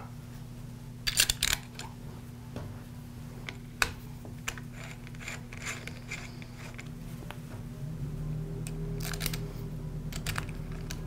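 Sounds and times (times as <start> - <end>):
screw turning clicks and scraping: 4.5 - 6.9.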